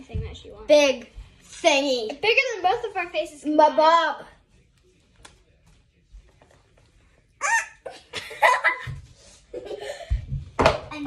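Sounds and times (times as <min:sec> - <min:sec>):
girls laughing and giggling: 0:07.4 - 0:10.3.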